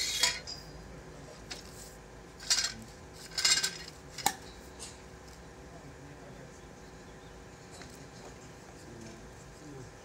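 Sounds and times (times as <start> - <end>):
metal tools scraping: 0.0 - 0.8, 2.4 - 4.0.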